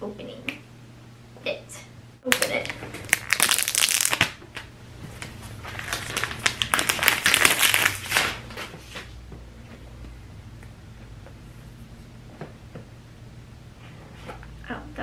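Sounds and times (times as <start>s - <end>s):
plastic shrink wrap crinkling: 2.3s - 9.0s.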